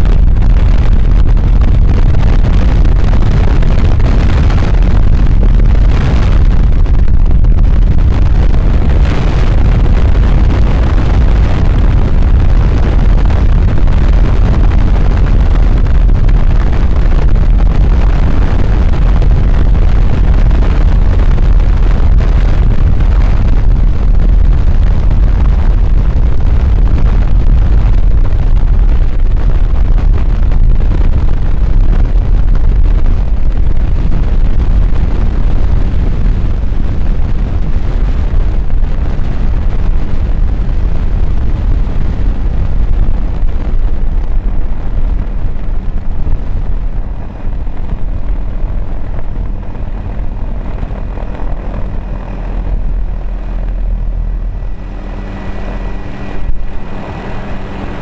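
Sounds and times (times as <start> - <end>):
faint steady whine: 0.0 - 58.0
wind rush: 0.0 - 58.0
helicopter rotor noise: 46.8 - 58.0.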